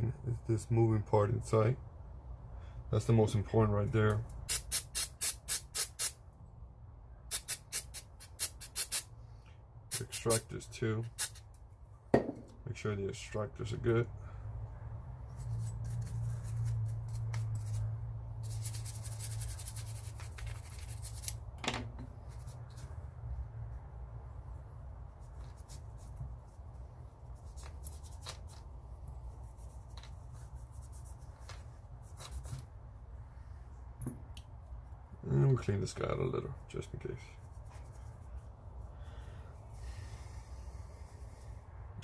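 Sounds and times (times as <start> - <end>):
cloth rubbing metal part: 15.3 - 21.4.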